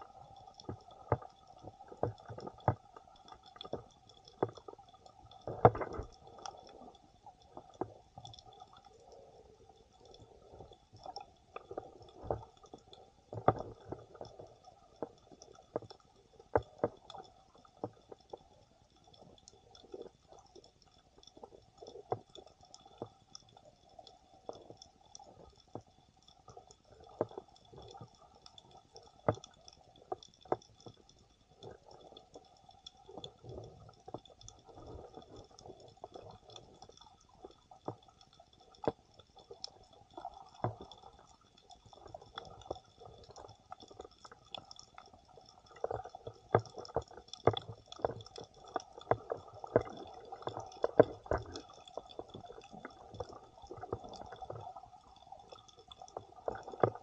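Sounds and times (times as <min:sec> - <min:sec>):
muffled underwater water movement: 0:00.0 - 0:57.0
sharp underwater clicks and knocks: 0:00.3 - 0:06.8, 0:10.1 - 0:18.5, 0:25.5 - 0:57.0.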